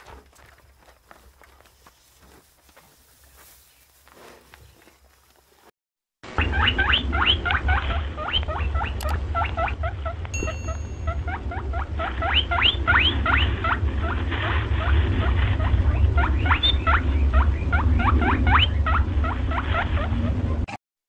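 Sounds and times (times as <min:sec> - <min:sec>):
low rumble: 0:06.3 - 0:20.7
small animals squeaking: 0:06.4 - 0:20.6.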